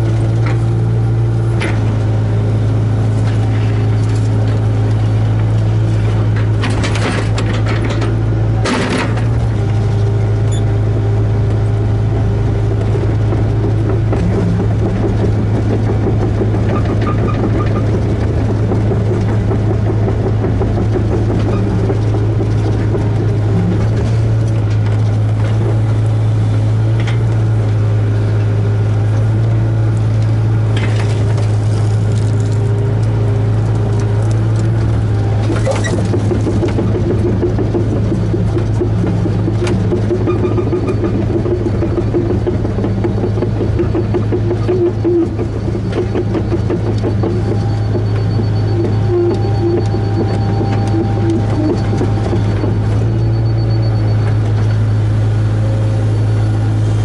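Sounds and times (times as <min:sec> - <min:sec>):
diesel engine low hum: 0:00.0 - 0:57.0
short knocks and clatters: 0:05.9 - 0:09.6, 0:12.7 - 0:26.0, 0:34.0 - 0:54.8.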